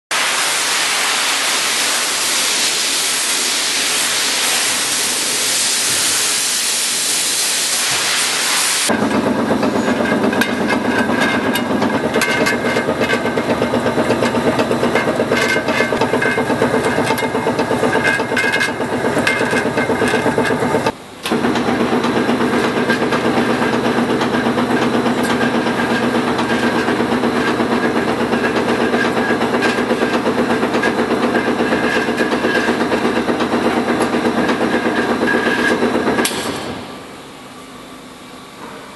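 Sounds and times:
band saw running: 8.8s - 37.2s.

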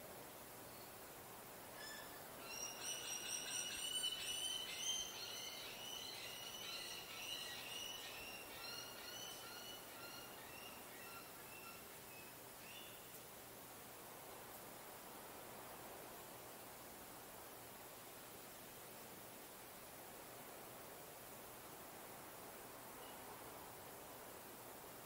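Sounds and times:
faint steady hiss: 0.0s - 25.0s
birds chirping: 2.0s - 13.0s.

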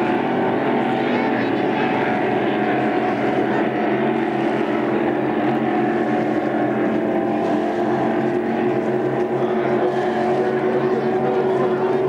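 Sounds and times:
motorboat engine running: 0.0s - 12.0s.

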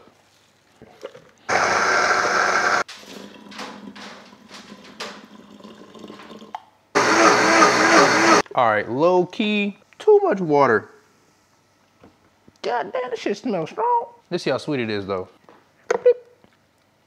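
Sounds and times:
countertop blender running: 1.5s - 3.4s, 7.0s - 8.4s
water pouring into blender jar: 2.9s - 6.6s.

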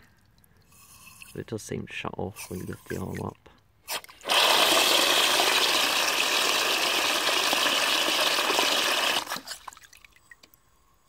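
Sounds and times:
water gushing into cistern: 3.9s - 10.4s.

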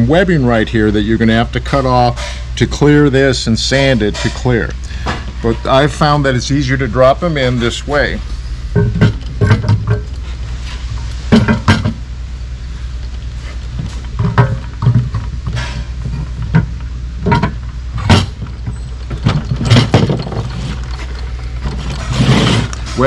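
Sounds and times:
steady low hum: 0.0s - 23.0s
metal knocks and clinks: 13.8s - 23.0s.

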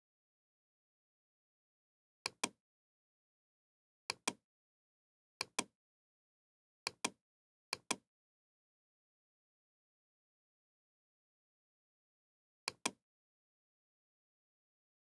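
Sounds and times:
computer mouse button clicking: 5.4s - 5.7s, 7.8s - 8.0s, 12.7s - 13.0s.

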